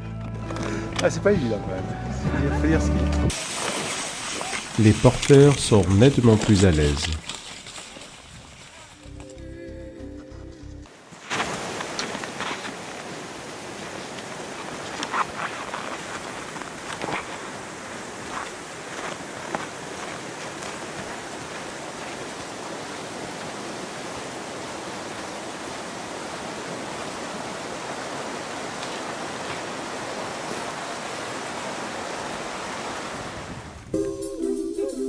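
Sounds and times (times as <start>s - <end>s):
music with sung melody: 9.0s - 10.9s, 34.0s - 35.0s
steady outdoor rushing noise: 11.4s - 34.0s.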